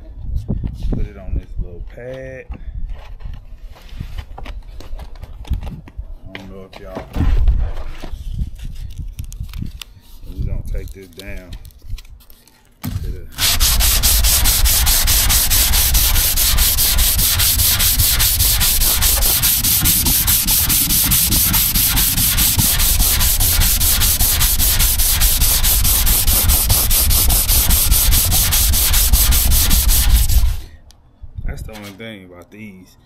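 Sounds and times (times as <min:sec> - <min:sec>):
power sander running: 0:13.4 - 0:30.6.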